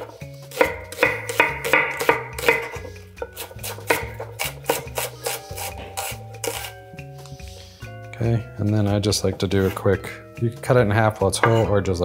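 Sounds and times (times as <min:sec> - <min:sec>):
knife slicing onion: 0:00.0 - 0:06.8
background music: 0:00.0 - 0:12.0.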